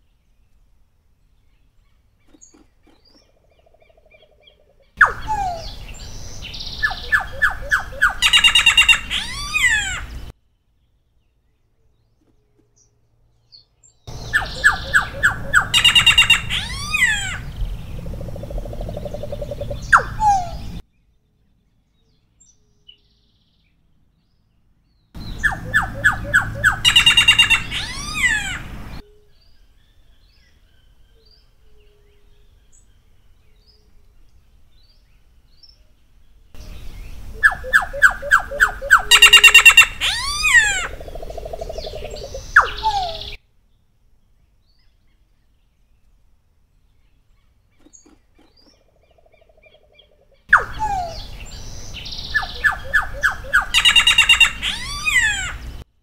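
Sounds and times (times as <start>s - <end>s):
bird singing whistles: 5.0s - 9.7s, 14.1s - 17.3s, 25.2s - 28.5s, 37.3s - 40.8s, 41.8s - 43.4s, 50.5s - 55.4s.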